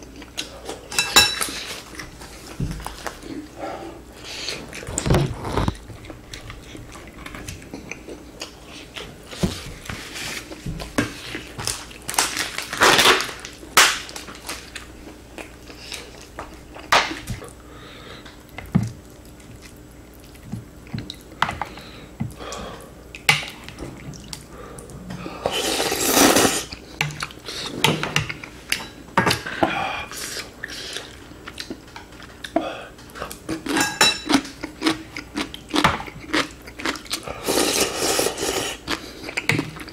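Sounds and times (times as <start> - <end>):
chewing: 34.2 - 39.9.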